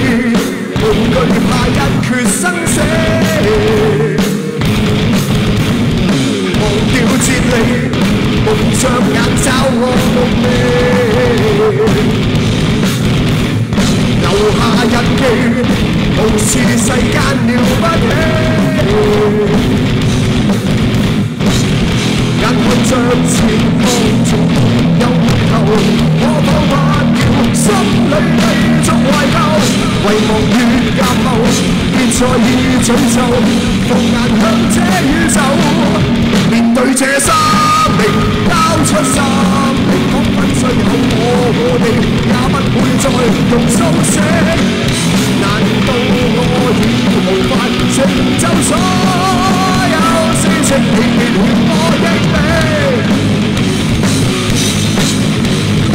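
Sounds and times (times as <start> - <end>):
man singing: 0.0 - 4.7, 6.0 - 12.4, 14.1 - 19.9, 22.4 - 53.3
rock band playing live: 0.0 - 55.9.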